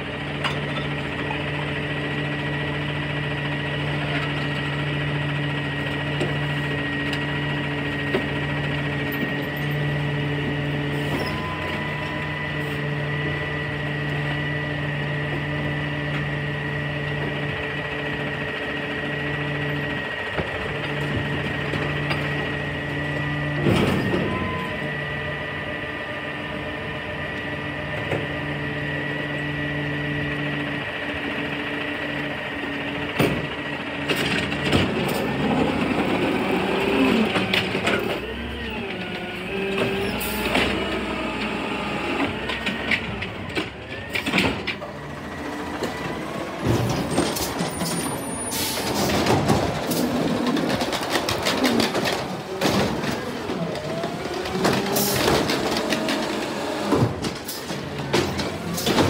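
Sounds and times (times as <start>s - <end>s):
garbage truck hum: 0.0s - 59.0s
garbage truck hydraulic whine: 0.0s - 59.0s
carts clanking and banging: 19.4s - 24.9s, 32.9s - 41.6s, 42.2s - 59.0s.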